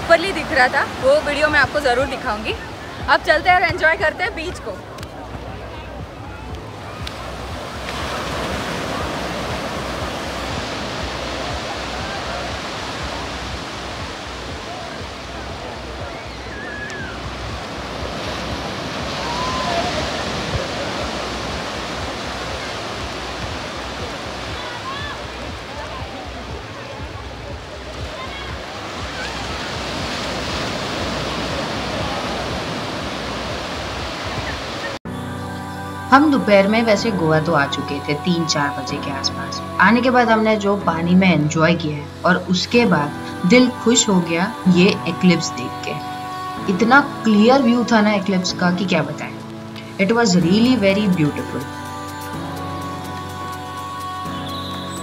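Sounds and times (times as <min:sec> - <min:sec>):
surf breaking on beach: 0:00.0 - 0:35.2.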